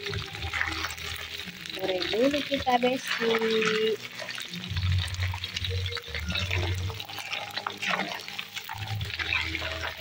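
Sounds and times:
metal spatula stirring: 0.0s - 10.0s
oil sizzling in a wok: 0.0s - 10.0s.

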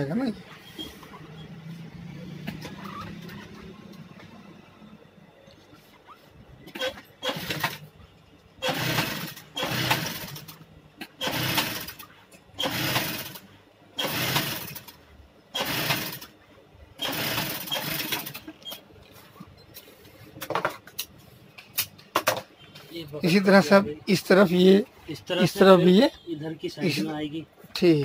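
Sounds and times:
sewing machine stitching: 6.7s - 7.9s, 8.6s - 13.4s, 14.0s - 16.3s, 17.0s - 18.8s.

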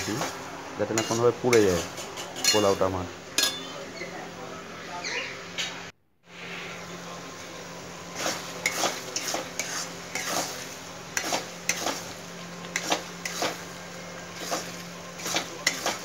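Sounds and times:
steel spoon scraping iron pan: 1.0s - 2.8s
oil sizzling lightly: 7.5s - 16.0s.

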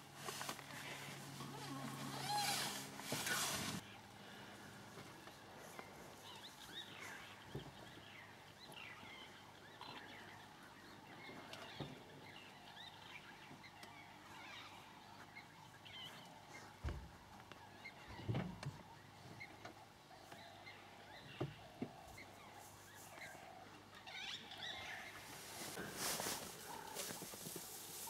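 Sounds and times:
wild dogs chirping: 19.0s - 28.0s.

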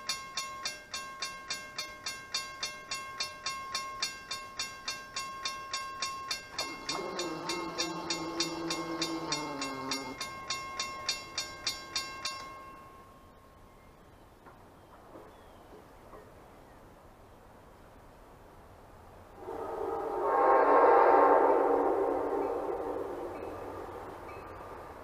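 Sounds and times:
crossing bell ringing: 0.0s - 13.7s, 22.2s - 25.0s
train horn chord: 6.8s - 10.2s.

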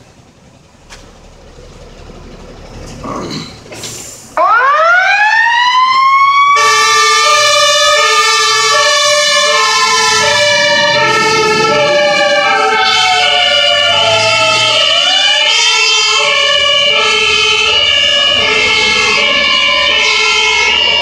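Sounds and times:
two-tone siren: 4.4s - 21.0s
wailing siren: 4.4s - 21.0s.

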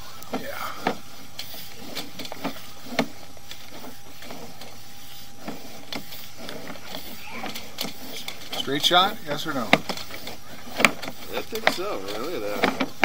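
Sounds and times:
cable clicks and knocks: 9.5s - 13.0s.

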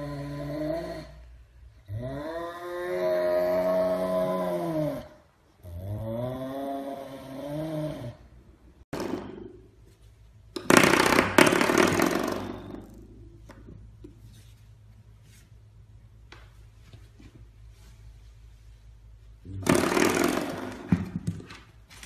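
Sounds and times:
serval growling yowls: 1.9s - 5.2s.

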